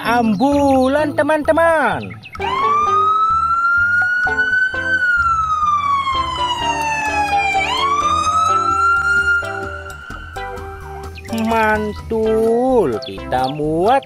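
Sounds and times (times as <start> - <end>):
background music with bass: 0.0 - 14.0
ambulance siren wailing: 2.4 - 12.1.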